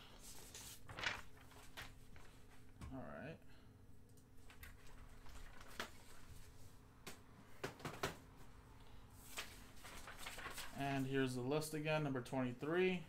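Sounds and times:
low room hum: 0.0 - 13.0
paper rustling: 0.1 - 2.7, 4.4 - 6.7, 9.2 - 11.2.

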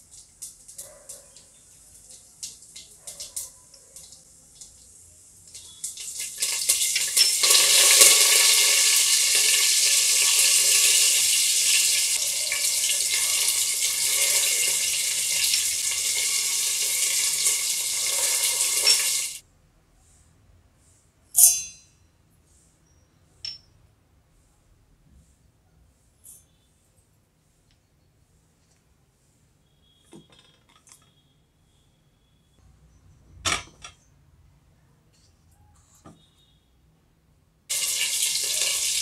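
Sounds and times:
seeds crackling in hot oil: 0.0 - 19.4, 37.7 - 39.0
loud steady oil sizzle: 1.4 - 19.4, 37.7 - 39.0.

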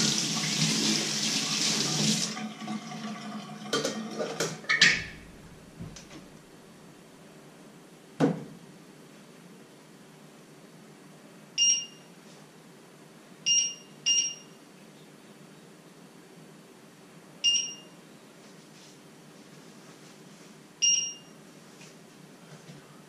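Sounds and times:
cooktop touch controls beeping: 11.6 - 12.1, 13.5 - 14.5, 17.4 - 18.0, 20.8 - 21.4.

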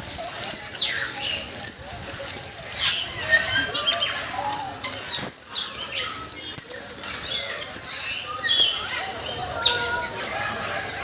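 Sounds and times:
parrots chattering and chirping: 0.8 - 1.5, 2.7 - 4.2, 4.9 - 10.1.

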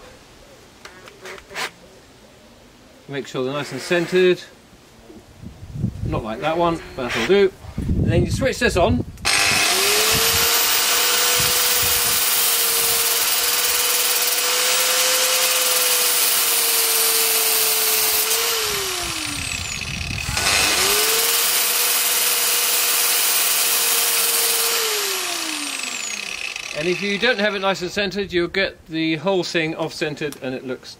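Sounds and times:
angle grinder motor whine: 9.2 - 27.8.

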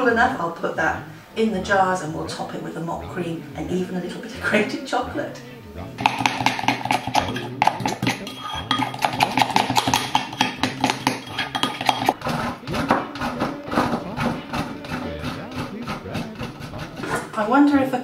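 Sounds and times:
background music: 0.0 - 18.0
spoon scraping ceramic bowl: 6.0 - 17.8.

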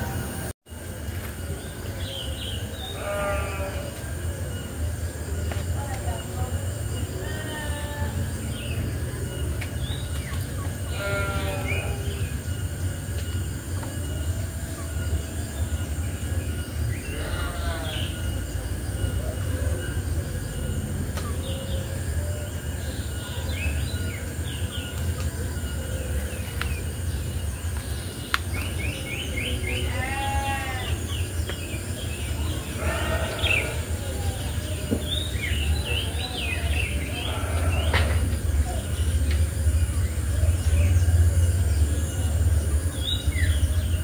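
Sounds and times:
high insect drone: 0.0 - 44.0
bleat-like animal calls: 2.9 - 4.0, 10.9 - 12.0, 17.1 - 18.2, 29.8 - 31.0, 32.7 - 34.0, 37.2 - 38.2.

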